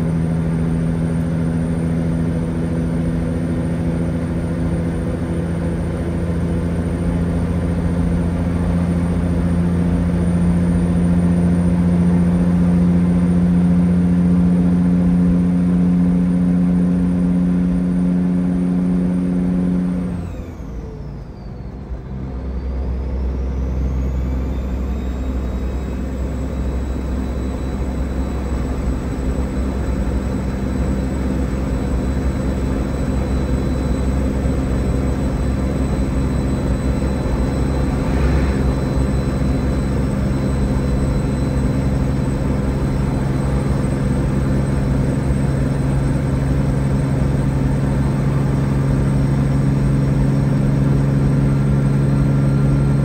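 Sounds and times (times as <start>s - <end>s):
diesel engine drone in cab: 0.0s - 53.0s
high swooping tone: 36.6s - 40.5s.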